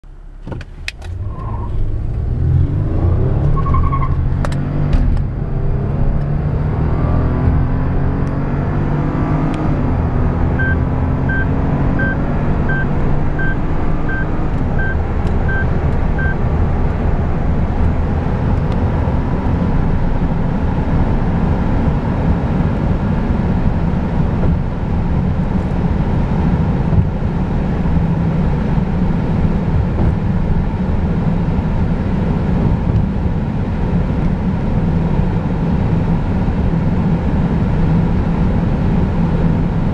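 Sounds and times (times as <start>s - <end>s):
car engine accelerating: 0.1s - 39.9s
wind and tyre noise: 0.4s - 39.9s
car warning chime beeps: 10.6s - 16.4s.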